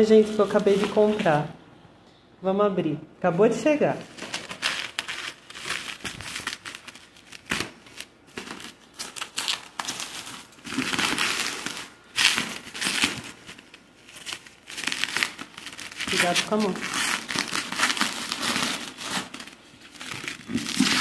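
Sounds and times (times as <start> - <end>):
bubble wrap crinkling: 0.0 - 1.5, 4.0 - 21.0.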